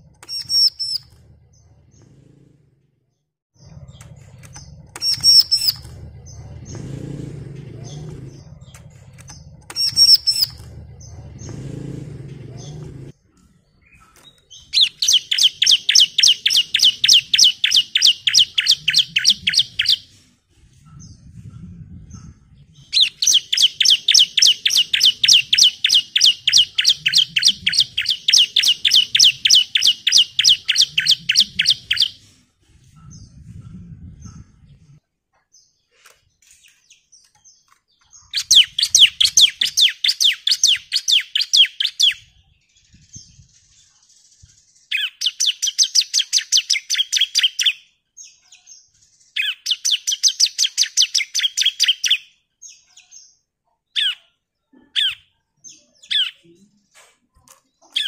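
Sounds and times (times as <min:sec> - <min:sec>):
bird fast high chirps: 0:00.1 - 0:01.8, 0:03.6 - 0:07.0, 0:07.8 - 0:11.7, 0:13.8 - 0:20.1, 0:22.2 - 0:32.2, 0:38.2 - 0:47.9, 0:48.6 - 0:52.4.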